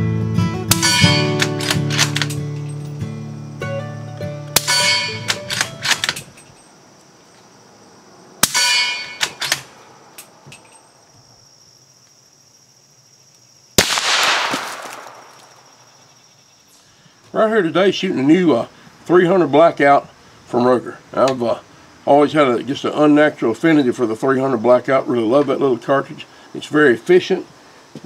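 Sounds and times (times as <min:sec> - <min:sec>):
rifle bolt clicks: 0:00.7 - 0:02.4, 0:04.6 - 0:06.6
suppressed rifle shots: 0:00.7 - 0:02.4, 0:04.6 - 0:06.3, 0:08.4 - 0:09.8, 0:13.8 - 0:15.7.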